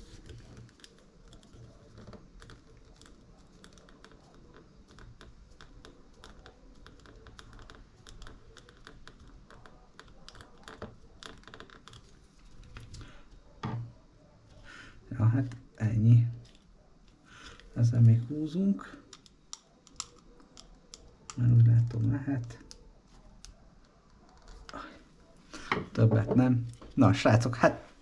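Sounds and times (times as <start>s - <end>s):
small parts clicking: 19.0s - 23.6s.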